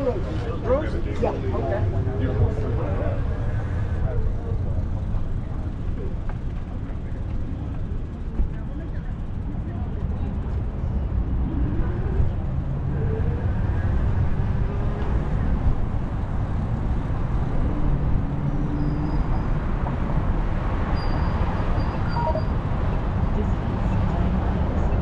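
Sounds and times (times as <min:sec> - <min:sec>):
faint voices: 0:00.0 - 0:18.2
low rumbling outdoor noise: 0:00.0 - 0:25.0.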